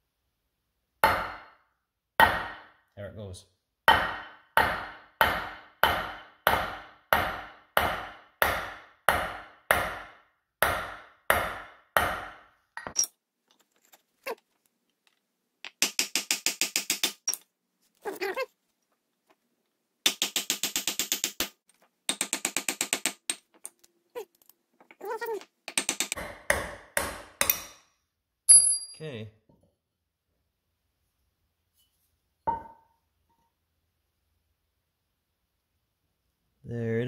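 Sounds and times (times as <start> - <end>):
hammer striking steel punch: 1.0 - 1.6, 2.2 - 2.8, 3.9 - 13.0, 25.7 - 27.9.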